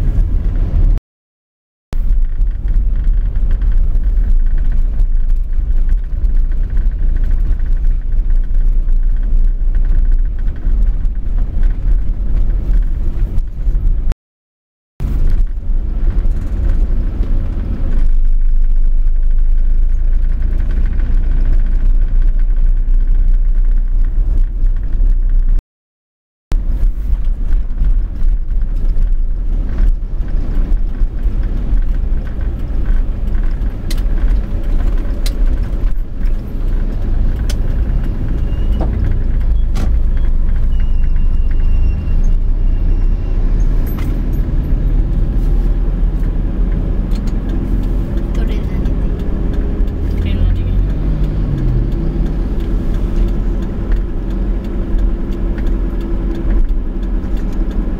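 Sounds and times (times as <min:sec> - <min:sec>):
vehicle road and engine rumble: 0:00.0 - 0:01.0, 0:01.9 - 0:14.2, 0:15.0 - 0:25.6, 0:26.5 - 0:57.9
light rattles and ticks: 0:02.1 - 0:13.7, 0:27.2 - 0:41.5, 0:46.2 - 0:57.9.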